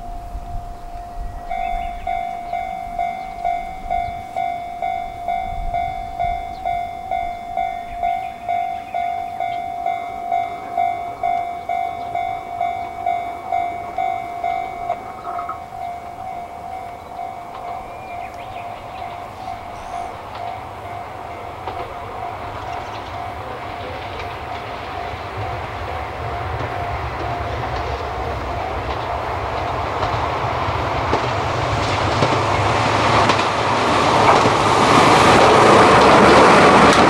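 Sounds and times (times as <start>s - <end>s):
higher electronic tone: 0.0s - 27.7s
level crossing alarm bell ringing: 0.0s - 30.4s.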